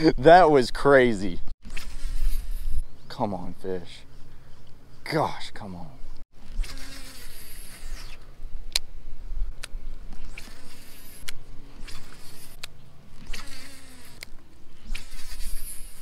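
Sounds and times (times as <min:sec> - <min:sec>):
fishing reel gears whirring: 0:01.7 - 0:02.8, 0:06.4 - 0:08.2, 0:10.2 - 0:16.0
reel sharp clicks: 0:09.6 - 0:16.0.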